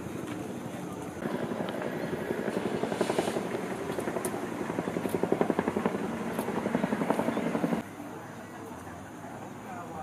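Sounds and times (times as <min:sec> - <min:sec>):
helicopter rotor chop: 0:01.0 - 0:07.8.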